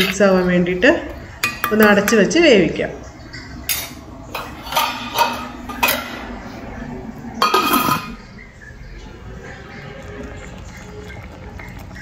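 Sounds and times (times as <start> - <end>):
spoon clinking against metal pan: 1.4 - 2.4, 3.7 - 6.3, 7.4 - 8.3.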